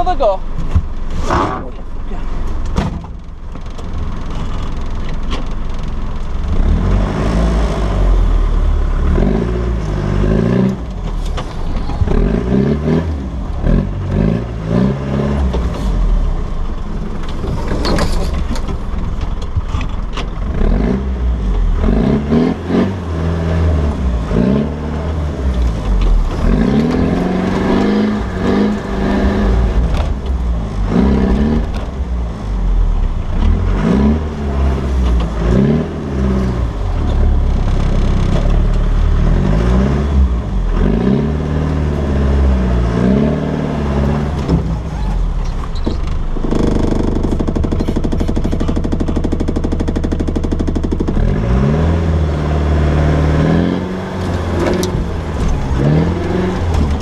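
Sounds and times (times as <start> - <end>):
low rumble: 0.0 - 40.7
engine revving: 6.3 - 18.8, 20.4 - 57.0
knocks and clatters: 16.7 - 20.7, 24.4 - 32.2, 34.9 - 35.8, 44.3 - 51.6, 54.1 - 57.0.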